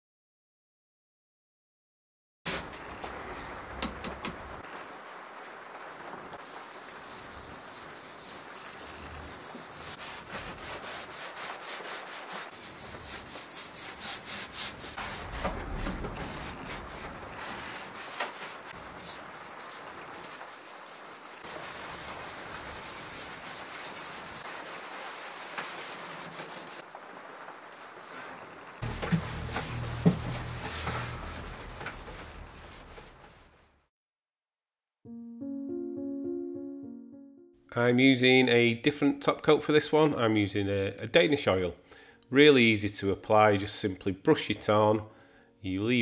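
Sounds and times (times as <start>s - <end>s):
sponge scrubbing wood: 6.4s - 26.8s, 27.6s - 33.8s.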